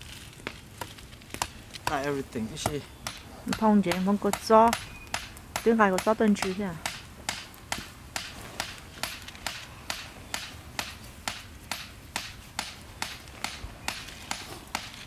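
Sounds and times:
crunching footsteps: 0.0s - 3.4s.

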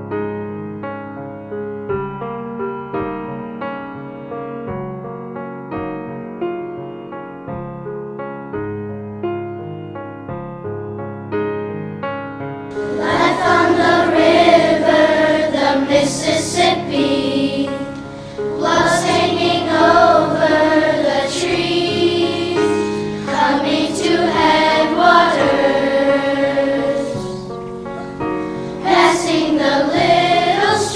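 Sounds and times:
piano: 0.0s - 30.9s
choir singing: 12.7s - 30.9s.

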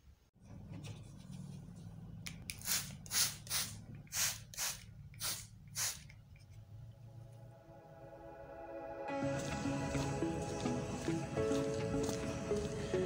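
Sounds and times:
spray bottle squirts hissing: 2.6s - 6.1s.

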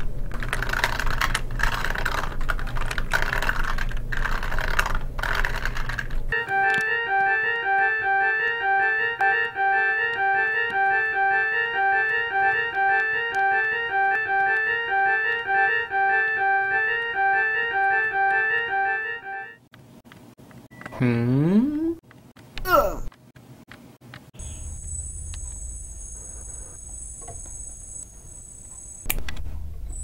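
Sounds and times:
organ-like keyboard music: 6.3s - 19.7s.

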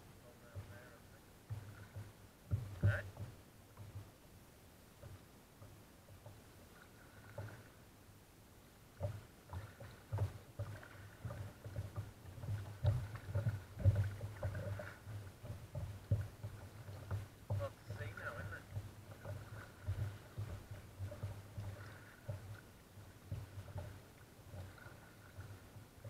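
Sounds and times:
paddle splashes: 0.0s - 26.0s
water knocking against kayak hull: 0.4s - 4.2s, 5.0s - 6.5s, 7.1s - 7.7s, 8.9s - 26.0s.

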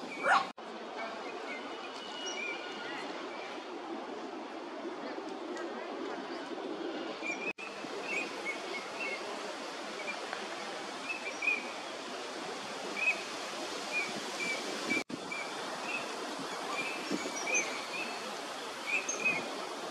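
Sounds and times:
background hiss: 7.2s - 19.9s.

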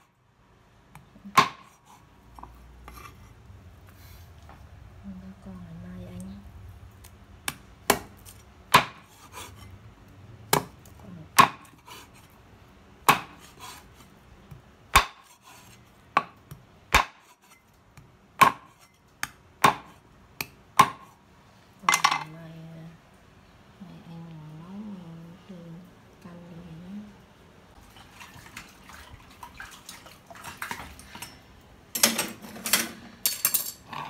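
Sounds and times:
cleaver chopping on wooden board: 13.0s - 13.5s, 14.9s - 15.4s, 18.4s - 21.1s.

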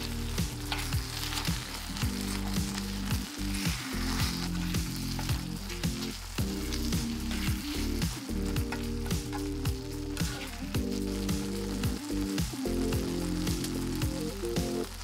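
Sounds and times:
background music beat: 0.0s - 15.0s
pasta sizzling in frying pan: 0.0s - 15.0s
utensil scraping pan: 0.4s - 10.7s.

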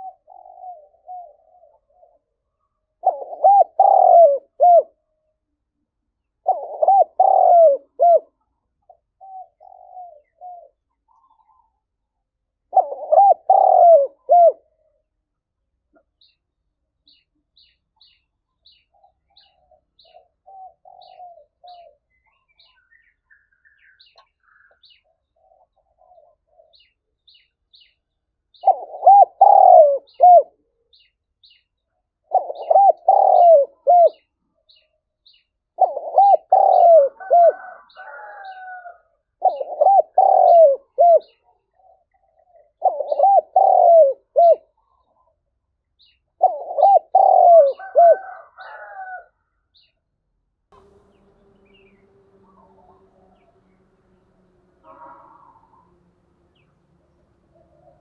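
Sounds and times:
dove cooing: 0.0s - 5.0s, 6.4s - 11.8s, 12.6s - 15.0s, 18.9s - 22.7s, 24.9s - 26.9s, 28.6s - 30.6s, 32.2s - 34.3s, 35.8s - 45.4s, 46.4s - 49.3s, 50.8s - 58.0s.

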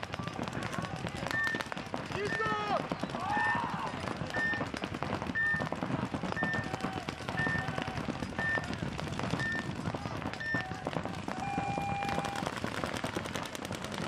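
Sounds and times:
lower electronic beeps: 9.4s - 9.7s, 11.4s - 12.4s.

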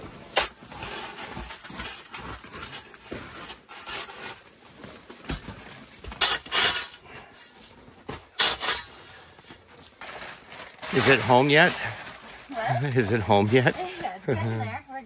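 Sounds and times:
ice chipper scraping snow and ice: 8.3s - 14.9s.

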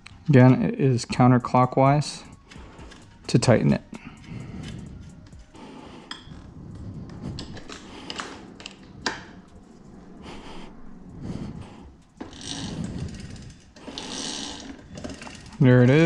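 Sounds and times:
tools clicking and knocking: 6.0s - 9.5s
metal parts rattling: 12.1s - 16.0s.

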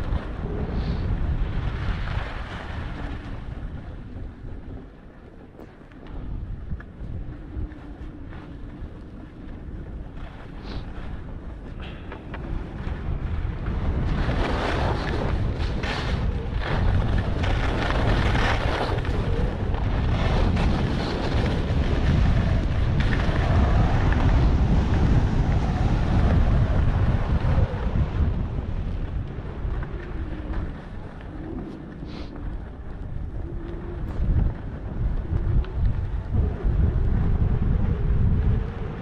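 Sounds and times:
wind buffeting microphone: 0.0s - 39.0s
skis scraping on snow: 13.6s - 25.0s.

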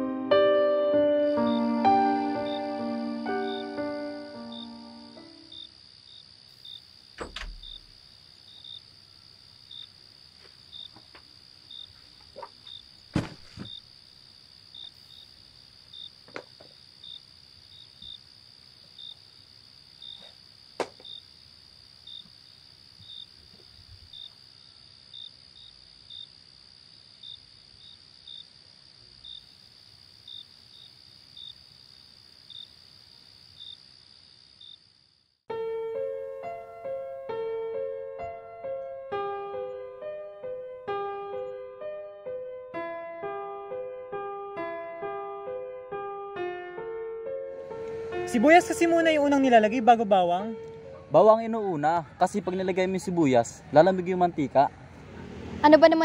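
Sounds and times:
cricket chirping: 0.9s - 41.8s, 47.3s - 56.0s
insects trilling: 1.0s - 35.4s, 47.6s - 54.5s.

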